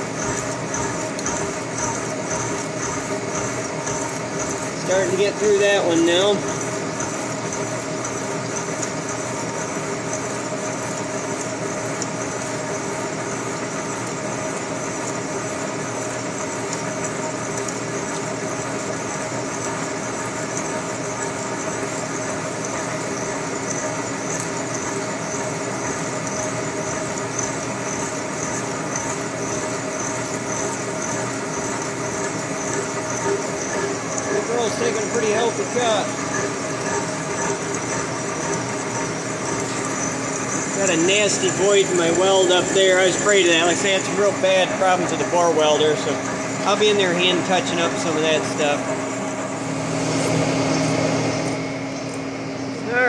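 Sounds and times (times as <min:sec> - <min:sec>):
boring mill humming: 0:00.0 - 0:53.0.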